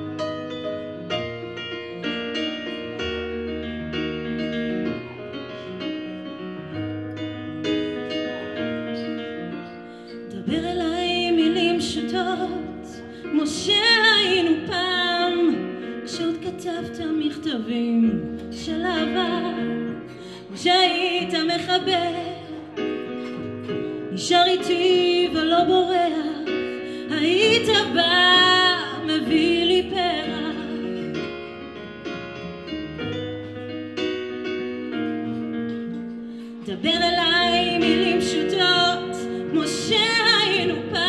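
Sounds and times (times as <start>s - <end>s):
keyboard playing piano: 0.0s - 41.0s
woman singing with vibrato: 10.3s - 19.8s, 24.1s - 31.0s, 36.7s - 41.0s.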